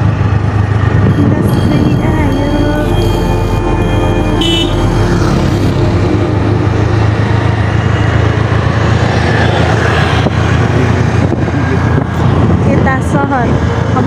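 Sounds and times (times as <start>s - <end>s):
rushing wind noise: 0.0s - 14.0s
scooter engine hum: 0.0s - 14.0s.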